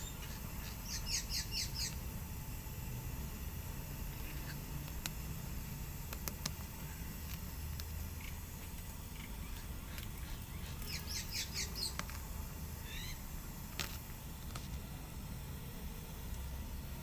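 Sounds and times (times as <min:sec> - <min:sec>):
steady low hum: 0:00.0 - 0:17.0
high-pitched animal chirps: 0:10.2 - 0:12.0, 0:12.8 - 0:13.2.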